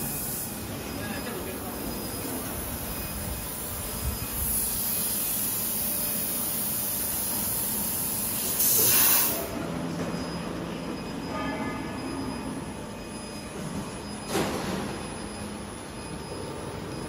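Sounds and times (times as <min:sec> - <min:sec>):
sharp hiss: 0:04.3 - 0:09.5.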